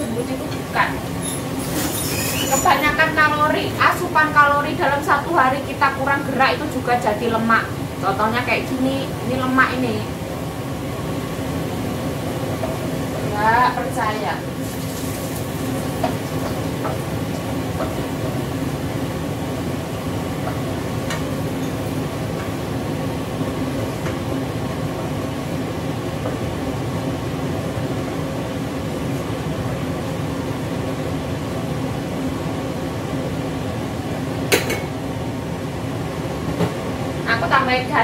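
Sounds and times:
garlic sizzling in oil: 11.9s - 22.7s.

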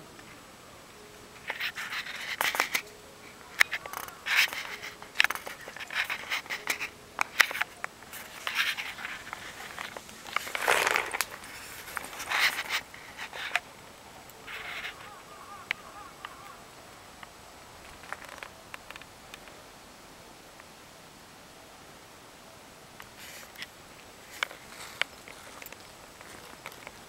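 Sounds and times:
sharp little clicks: 1.4s - 13.7s.

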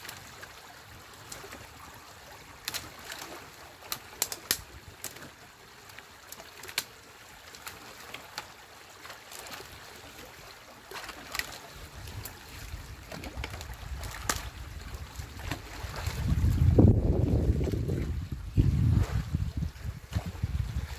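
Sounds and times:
trickling water: 0.0s - 20.9s
sticks knocking and snapping: 3.9s - 5.2s, 13.1s - 14.5s
wind rumble on microphone: 11.8s - 20.9s.

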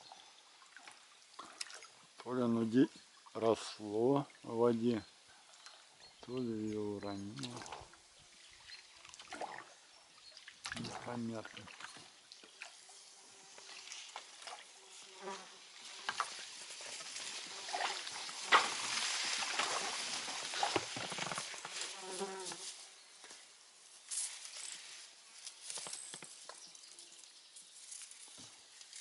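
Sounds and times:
branches scraping against boat: 13.4s - 22.9s.

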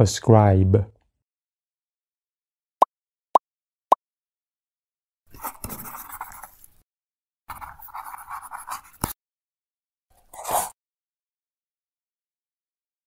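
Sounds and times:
pen scratching on paper: 5.3s - 6.7s, 7.5s - 9.2s.

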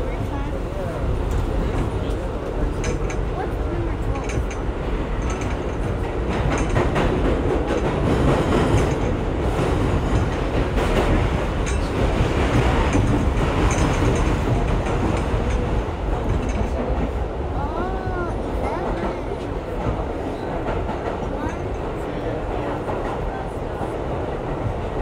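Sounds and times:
subway wheels rumbling on rails: 0.0s - 25.0s
wheels clacking over rail joints: 1.0s - 17.8s.

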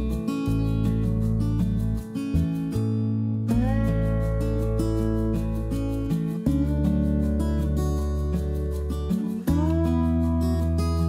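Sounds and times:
acoustic guitar chords: 0.0s - 11.0s.

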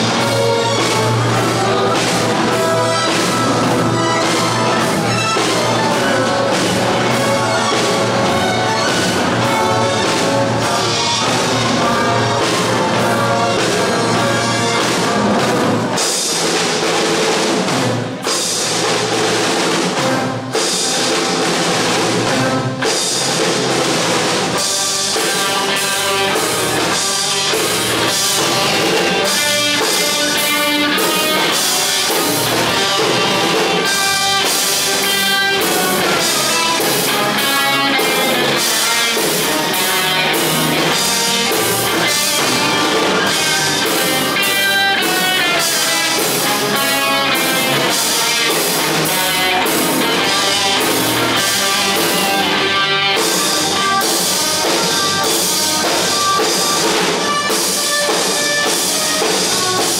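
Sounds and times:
electric bass: 0.0s - 15.9s
electric guitar: 0.0s - 18.8s, 19.8s - 59.9s
drum kit beat: 0.0s - 59.9s.

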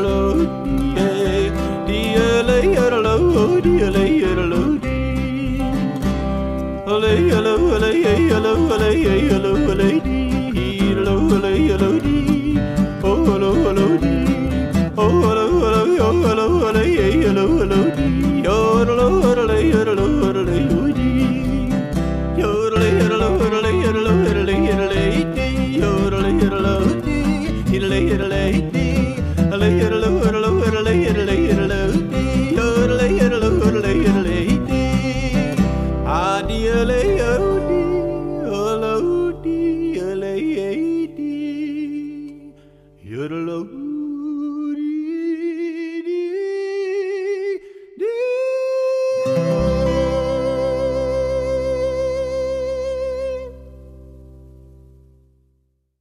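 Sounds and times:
person singing long notes: 0.0s - 6.0s, 6.8s - 53.9s
country song with guitar and bass: 0.0s - 46.5s, 48.0s - 55.1s
band playing: 35.6s - 39.7s.

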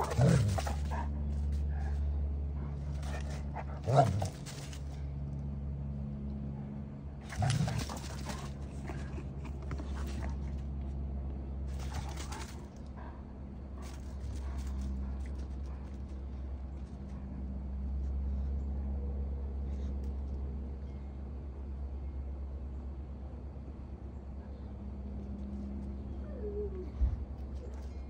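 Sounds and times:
dogs scuffling: 0.0s - 1.9s, 2.8s - 5.0s, 7.2s - 10.7s, 11.7s - 12.8s, 13.8s - 17.2s
dogs growling and barking: 0.0s - 5.1s, 6.6s - 10.8s, 11.7s - 17.4s
steady low hum: 0.0s - 28.0s.

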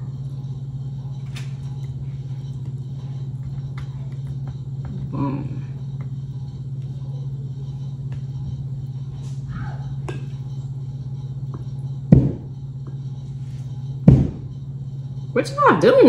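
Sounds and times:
steady low hum: 0.0s - 16.0s
loud knock: 14.1s - 14.5s.

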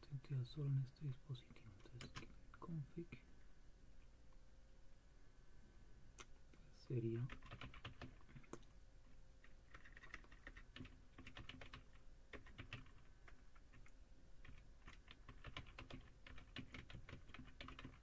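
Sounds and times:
computer keyboard typing: 1.8s - 2.3s, 7.2s - 8.6s, 9.4s - 18.0s.

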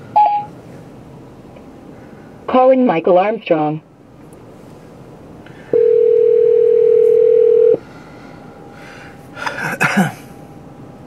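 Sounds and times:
telephone ringback tone: 5.7s - 7.8s.

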